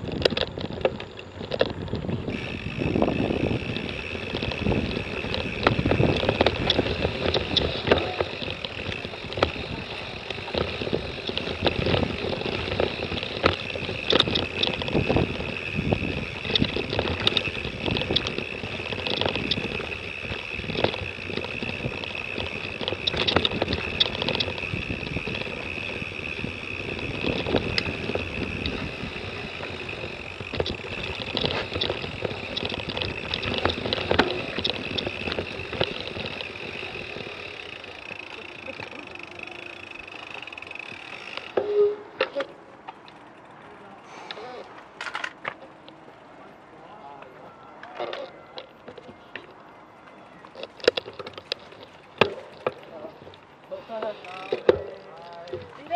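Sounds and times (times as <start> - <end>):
wind on microphone: 0.0 - 37.6
bike rattling and knocking: 0.0 - 43.6, 50.4 - 55.9.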